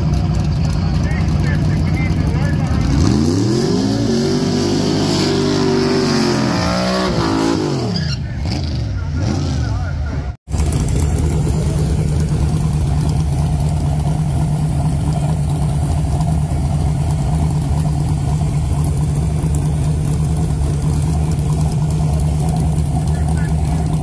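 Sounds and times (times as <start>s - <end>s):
car engine idling loudly: 0.0s - 3.5s, 9.0s - 24.0s.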